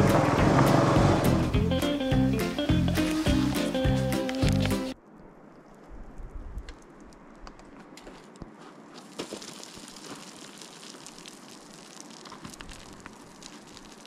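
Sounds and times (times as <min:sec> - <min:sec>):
boots crunching on scree: 0:02.5 - 0:04.9, 0:07.7 - 0:14.0
small stones clattering: 0:09.0 - 0:14.0.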